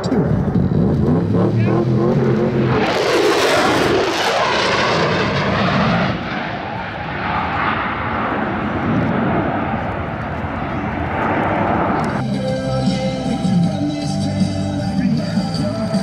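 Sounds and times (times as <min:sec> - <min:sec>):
jet engine passing: 0:00.0 - 0:12.2.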